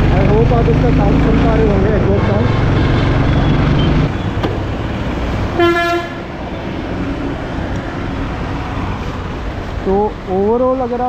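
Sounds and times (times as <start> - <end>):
motorcycle engine rumbling: 0.0 - 10.7
vehicle horn toot: 5.6 - 6.2.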